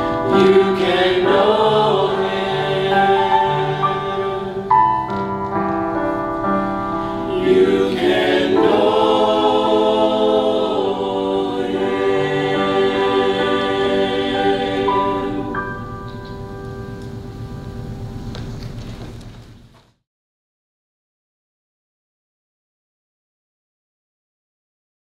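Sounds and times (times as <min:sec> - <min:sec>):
mixed choir singing in harmony: 0:00.0 - 0:16.1.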